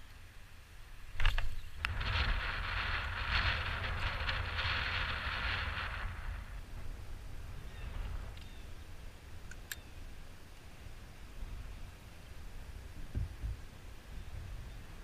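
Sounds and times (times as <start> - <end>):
wind rumbling on microphone: 0.0 - 15.0
faint clicks: 9.4 - 9.9.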